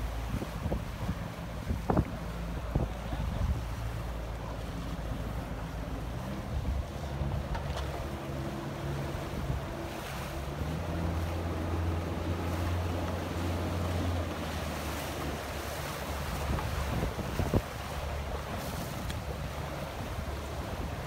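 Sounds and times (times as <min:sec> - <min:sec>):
outboard motor running: 0:00.0 - 0:21.0
water rushing past hull: 0:00.0 - 0:21.0
wind buffeting microphone: 0:00.1 - 0:03.8, 0:15.2 - 0:21.0.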